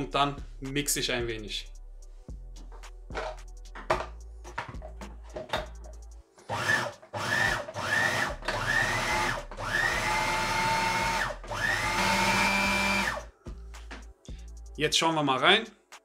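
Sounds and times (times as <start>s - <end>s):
food processor motor whining: 6.5s - 13.3s.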